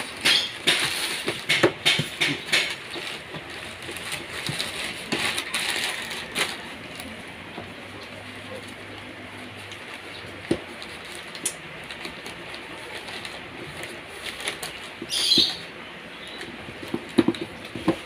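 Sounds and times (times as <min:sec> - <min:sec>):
plastic bag crinkling: 0:00.0 - 0:15.6
cardboard box being handled: 0:02.6 - 0:07.1.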